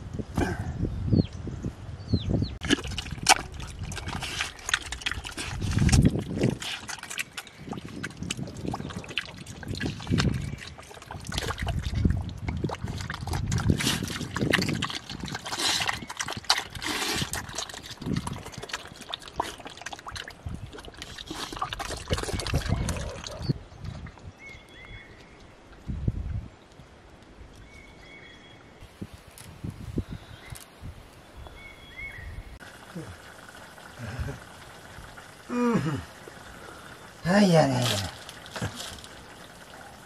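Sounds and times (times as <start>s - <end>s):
piglets slurping and chewing: 2.6s - 24.0s, 32.6s - 40.0s.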